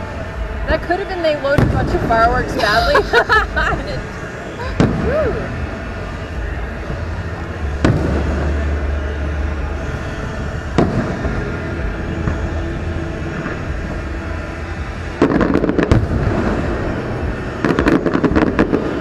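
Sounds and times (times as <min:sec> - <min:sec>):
crackling firework reports: 0:00.0 - 0:19.0
low rumble: 0:00.0 - 0:19.0
firework boom: 0:04.6 - 0:05.6, 0:07.8 - 0:08.8, 0:15.2 - 0:19.0.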